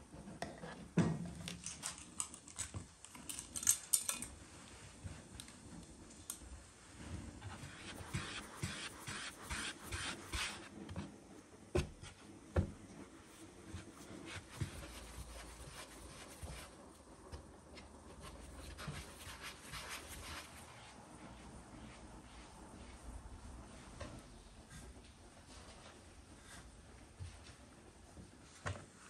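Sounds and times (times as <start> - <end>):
scraping rubbing strokes: 7.5 - 10.7, 13.3 - 16.9.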